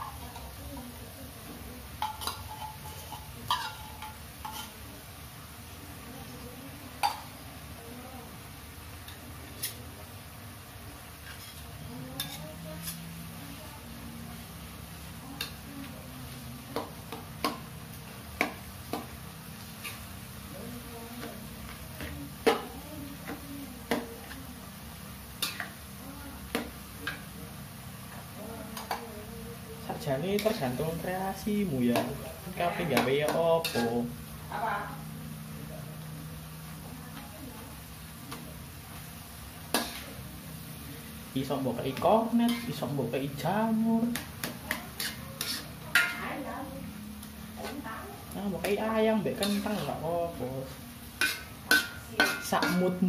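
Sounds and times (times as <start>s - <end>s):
metal spoon scraping a wok: 1.9s - 4.8s, 9.1s - 9.8s, 11.2s - 13.2s, 18.4s - 20.2s, 25.4s - 25.8s, 31.6s - 34.0s, 39.7s - 40.2s, 42.0s - 42.9s, 44.1s - 46.3s, 48.5s - 53.0s.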